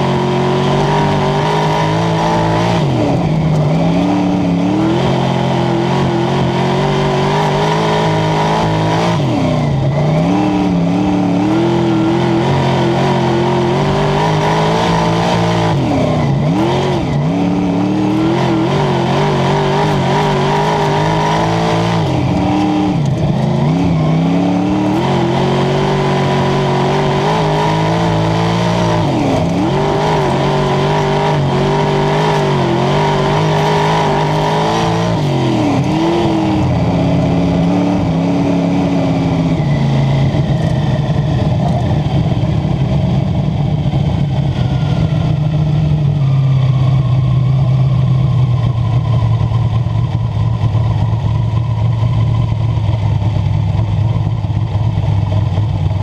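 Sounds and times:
race car engine revving: 0.0s - 53.0s.

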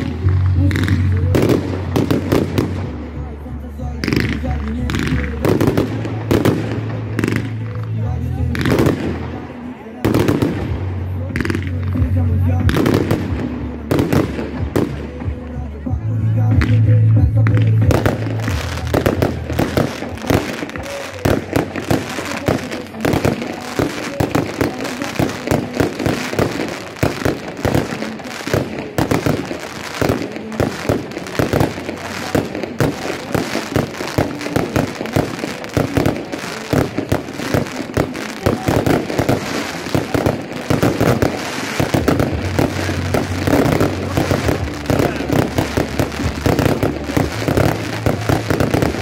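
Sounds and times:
fireworks crackling and popping: 0.0s - 49.0s.

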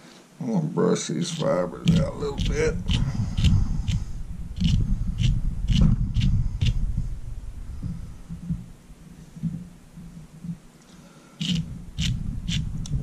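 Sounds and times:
wire brush strokes through fibers: 1.2s - 8.3s
low handling thumps: 1.4s - 10.8s, 11.6s - 13.0s.

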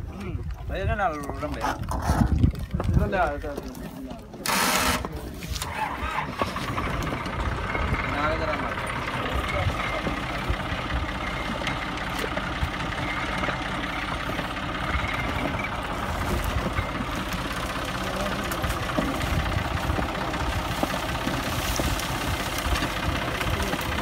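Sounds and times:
tractor diesel engine chugging: 4.4s - 24.0s.

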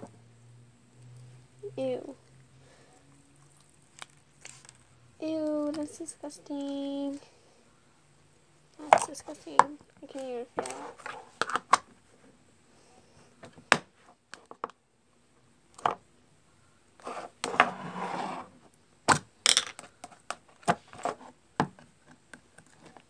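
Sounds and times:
rustling handling noise: 3.5s - 7.3s, 8.7s - 12.4s.

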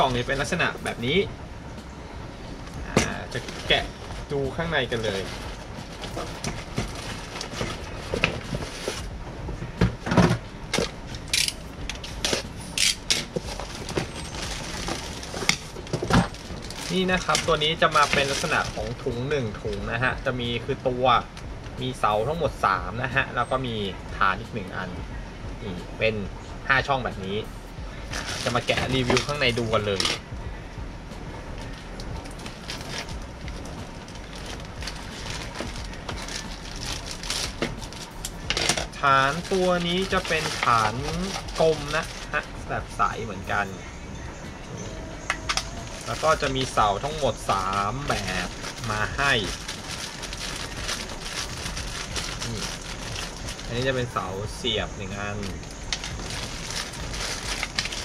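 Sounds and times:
plastic wrap crinkling: 3.0s - 9.1s, 12.1s - 19.1s, 28.1s - 30.2s, 32.2s - 42.6s, 45.4s - 54.0s, 55.4s - 58.0s
cardboard boxes scraping and knocking: 5.0s - 10.9s.

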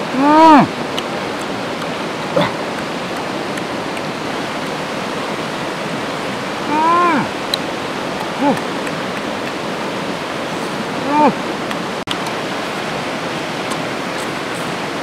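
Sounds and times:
man's wordless vocal sounds: 0.0s - 0.8s, 6.6s - 7.4s, 8.2s - 8.9s, 10.9s - 11.5s
stream rushing over rocks: 0.0s - 15.0s.

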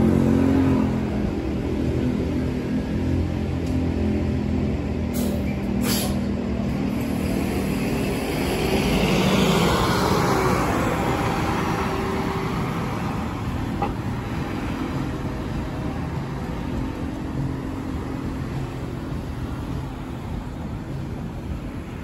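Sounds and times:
bus engine accelerating: 0.0s - 22.0s
street traffic: 0.0s - 22.0s
brief air hisses: 5.2s - 6.3s.

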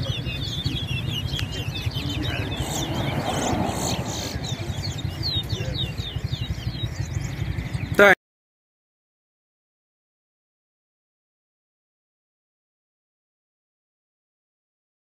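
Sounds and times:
low steady rumble: 0.0s - 8.0s
finches twittering song: 0.0s - 8.1s.

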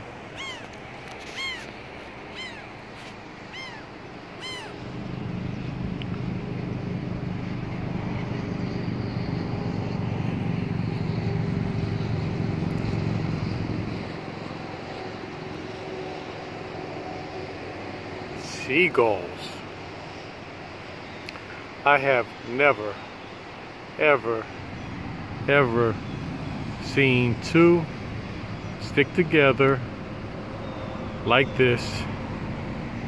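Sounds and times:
gull calling: 0.0s - 5.0s
low vehicle rumble: 0.0s - 18.5s.

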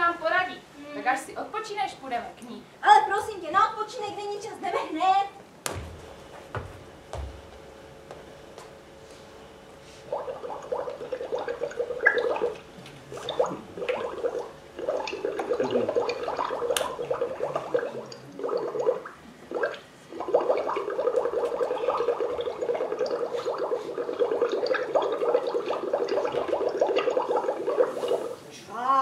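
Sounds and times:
liquid bubbling and gurgling: 10.0s - 28.4s.

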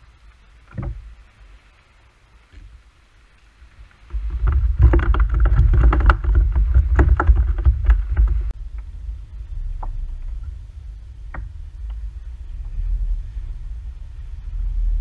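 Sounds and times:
knocks and clatter in plastic kayak: 0.7s - 1.1s, 4.0s - 8.5s
loud low rumble: 4.1s - 15.0s.

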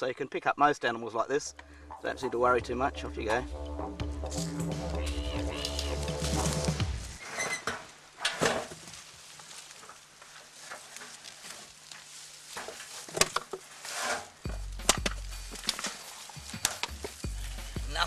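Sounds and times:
didgeridoo music: 1.6s - 7.2s, 14.5s - 18.0s
rustles: 4.2s - 18.0s.

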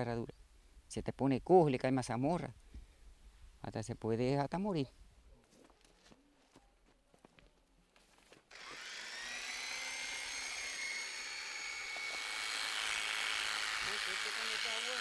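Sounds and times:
electric clippers whining: 8.5s - 15.0s.

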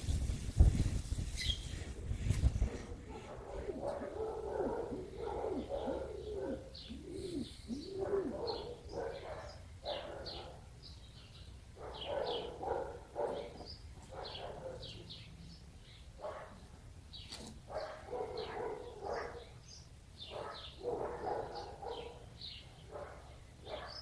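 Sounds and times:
birds chirping: 0.0s - 24.0s
lower arching bird calls: 2.6s - 10.6s.

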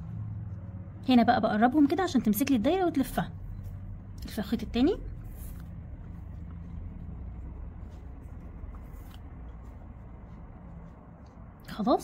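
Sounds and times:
low background rumble: 0.0s - 12.0s
cord rustling: 5.0s - 11.6s.

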